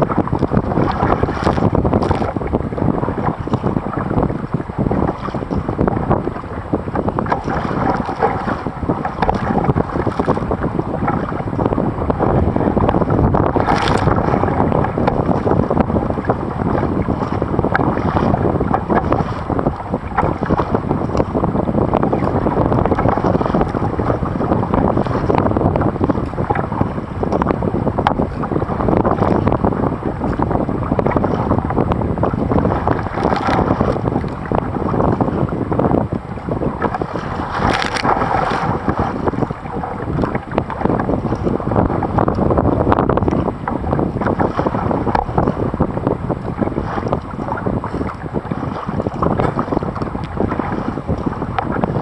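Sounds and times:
paddle strokes splashing: 0.0 - 52.0
strong wind buffeting microphone: 0.0 - 52.0.

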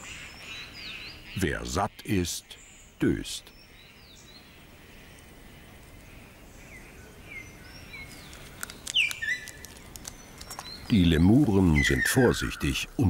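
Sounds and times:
soft steady hiss: 0.0 - 13.0
high bird chirps: 7.3 - 13.0
sharp clicks: 8.2 - 10.8.

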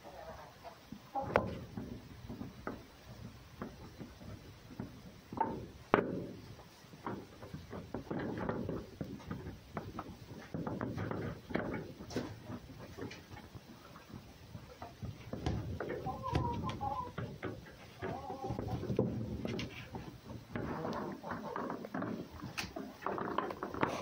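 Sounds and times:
soft rustling and scraping: 0.9 - 24.0.

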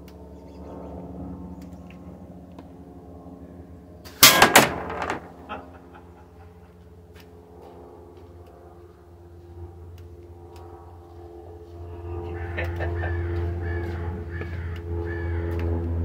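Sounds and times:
shot banging on metal plate: 4.1 - 5.5.

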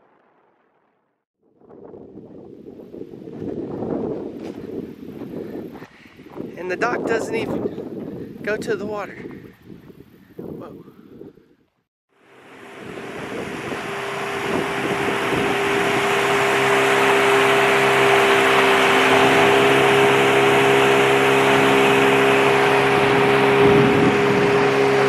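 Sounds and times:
wind: 1.4 - 25.0
rush of boat wake: 12.1 - 25.0
outboard motor running: 12.2 - 25.0.

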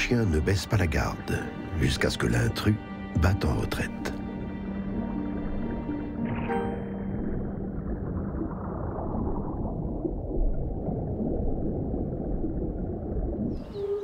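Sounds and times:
muffled underwater gurgling: 7.1 - 14.0.

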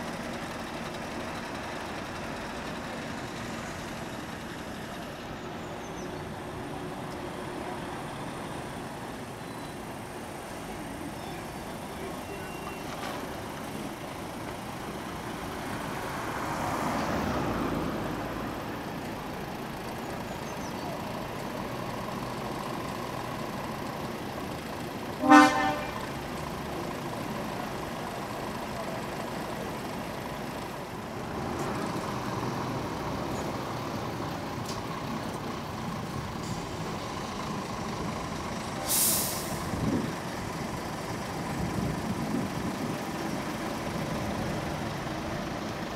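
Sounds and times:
heavy trucks passing: 0.0 - 45.9
truck horn toot: 25.2 - 26.2
air brake hiss: 38.8 - 39.7.

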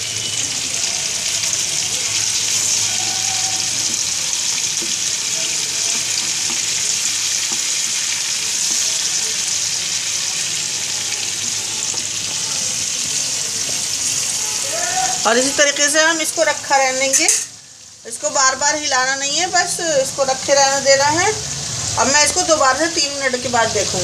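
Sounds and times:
chicken sizzling in oil: 0.0 - 24.0
fork turning food in pan: 1.3 - 15.1.

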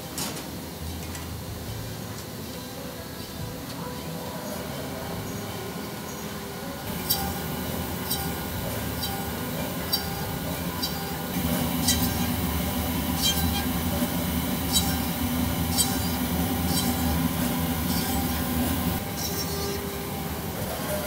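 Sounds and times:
drilling machine motor hum: 6.9 - 21.0.

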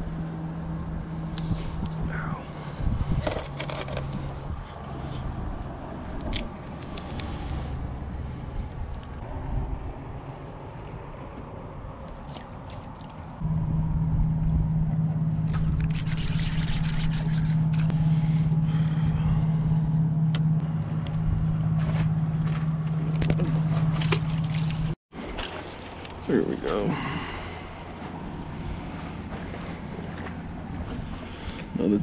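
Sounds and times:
low motor hum: 0.0 - 32.0
clicks and scrapes handling fish: 3.2 - 5.4, 15.5 - 17.9.

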